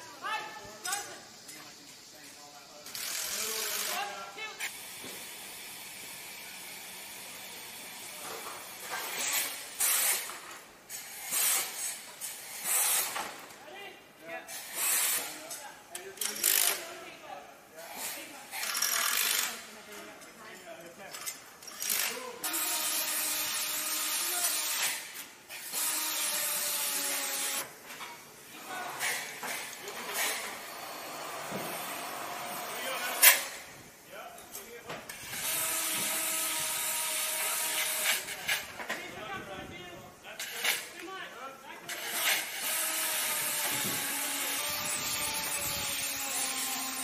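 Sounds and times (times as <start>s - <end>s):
welding arc hissing and crackling: 0.0s - 13.2s, 21.8s - 38.7s, 41.9s - 47.0s.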